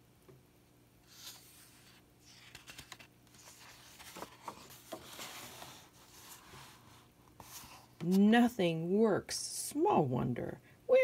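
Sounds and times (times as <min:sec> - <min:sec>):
paper rustling: 0:01.1 - 0:08.2.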